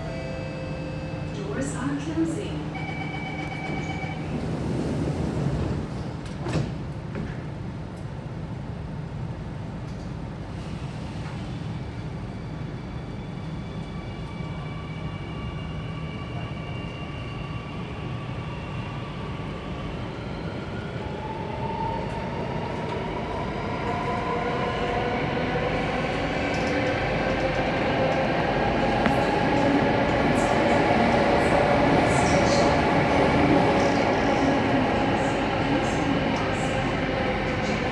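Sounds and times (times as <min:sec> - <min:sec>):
train doors shutting with a knock: 0:06.2 - 0:07.5.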